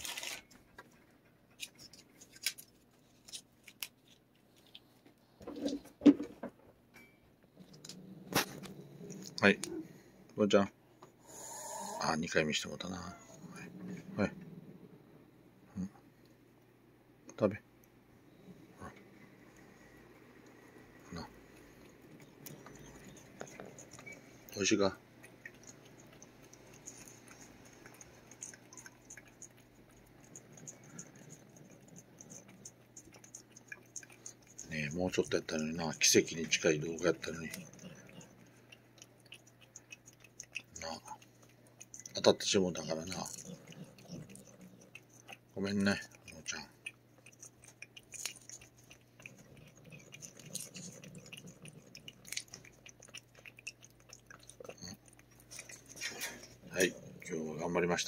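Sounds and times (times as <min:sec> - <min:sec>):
steady low hum: 0:06.9 - 0:58.0
cat tongue licking clicks: 0:21.4 - 0:56.6.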